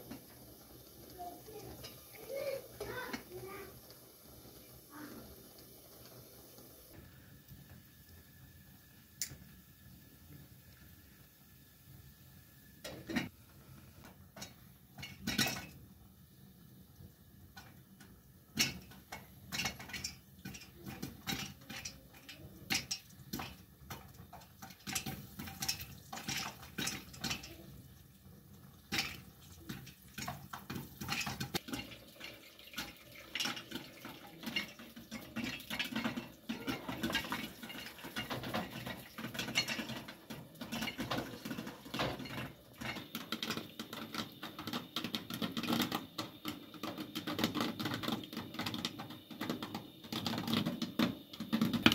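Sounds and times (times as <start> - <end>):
cooking pots and lids clattering: 1.1 - 3.7, 12.8 - 13.4, 14.1 - 16.0, 17.4 - 51.9.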